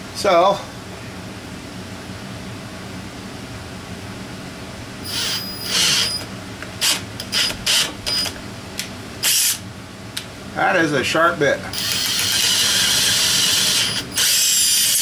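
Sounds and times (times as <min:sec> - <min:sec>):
electric drill whining: 0:05.0 - 0:08.4, 0:11.8 - 0:15.0.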